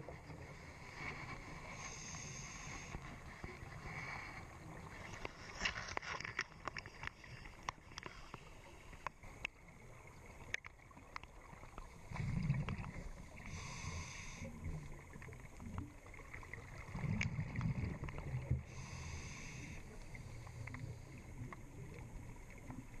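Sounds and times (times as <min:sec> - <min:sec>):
regulator inhalation hiss: 0:01.6 - 0:03.0, 0:13.4 - 0:14.6, 0:18.7 - 0:20.4
diver exhaling bubbles: 0:12.1 - 0:13.0.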